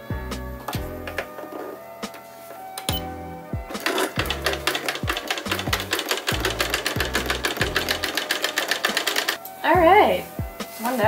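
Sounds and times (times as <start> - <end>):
background music with deep bass: 0.0 - 11.0
sewing machine needle clatter: 3.8 - 9.4.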